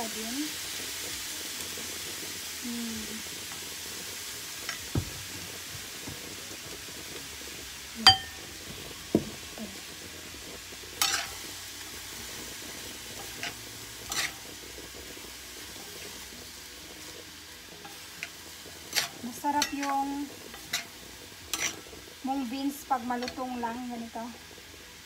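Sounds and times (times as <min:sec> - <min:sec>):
food sizzling in frying pan: 0:00.0 - 0:25.0
sharp ringing clink: 0:08.1 - 0:08.4
wooden utensils knocking pan: 0:18.9 - 0:20.9.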